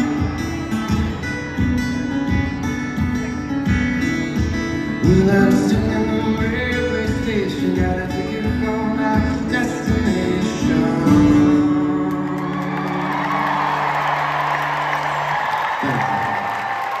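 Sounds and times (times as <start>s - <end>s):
acoustic guitar: 0.0s - 17.0s
crowd applause and cheering: 11.2s - 17.0s.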